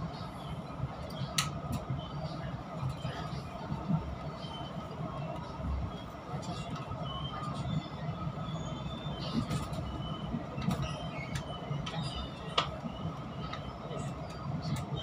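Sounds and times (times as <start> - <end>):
train wheels rumbling on rail: 0.0 - 15.0.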